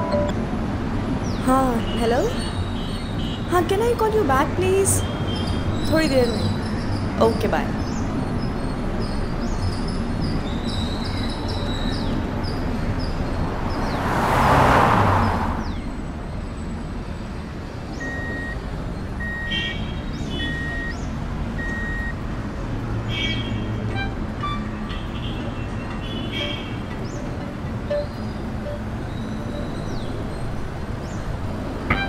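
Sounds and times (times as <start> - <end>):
car driving past: 13.0 - 16.2.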